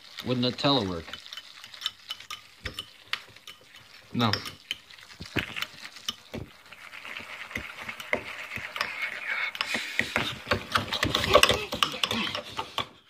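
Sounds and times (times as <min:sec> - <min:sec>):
fork scraping a bowl: 0:07.0 - 0:12.9.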